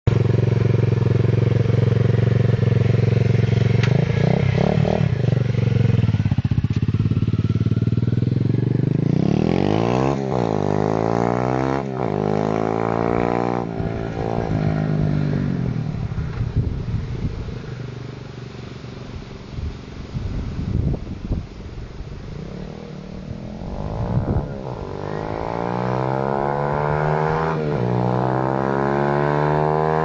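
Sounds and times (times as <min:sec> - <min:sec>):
motorbike engine revving: 0:00.1 - 0:17.4, 0:22.3 - 0:30.0.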